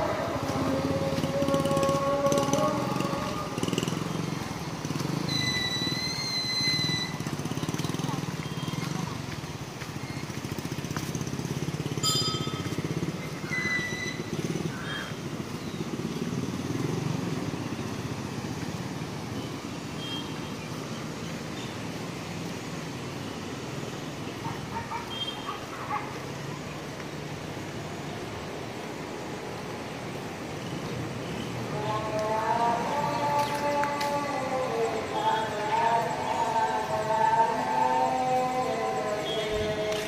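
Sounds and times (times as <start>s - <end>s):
motorcycle engine running: 0.0s - 5.9s, 6.6s - 21.2s.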